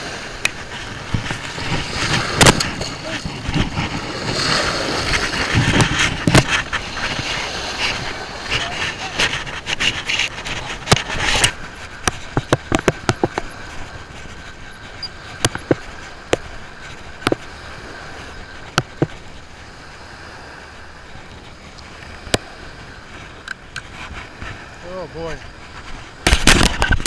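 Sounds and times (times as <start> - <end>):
surf washing: 0.0 - 27.0
wind: 0.0 - 27.0
fishing reel clicks and taps: 11.4 - 13.6, 15.0 - 15.8.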